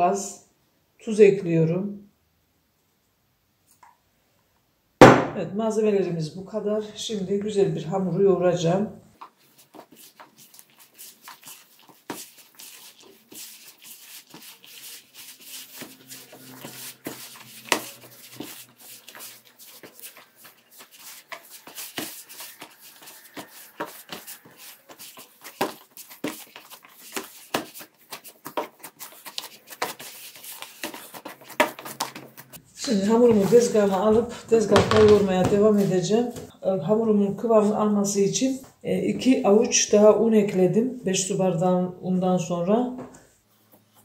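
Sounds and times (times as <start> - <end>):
hand kneading dough in a bowl: 9.2 - 36.6.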